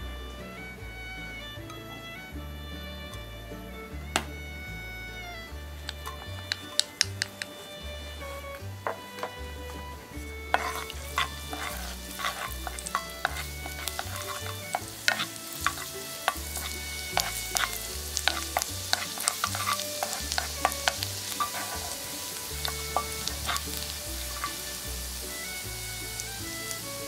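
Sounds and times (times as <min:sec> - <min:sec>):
garlic sizzling in oil: 0:05.8 - 0:27.0
spatula scraping a pan: 0:06.0 - 0:27.0.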